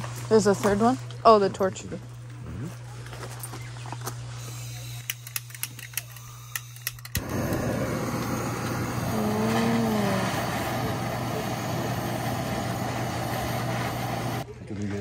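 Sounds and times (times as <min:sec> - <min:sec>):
gas torch igniter clicks: 0:05.0 - 0:14.4
torch flame hissing: 0:06.2 - 0:14.5.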